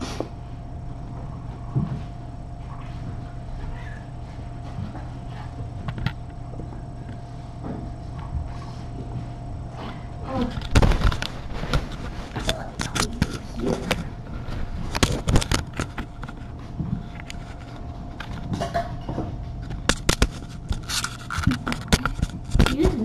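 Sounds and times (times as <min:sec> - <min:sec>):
low electrical hum: 0:00.0 - 0:23.0
knocks and rustling near microphone: 0:10.4 - 0:23.0.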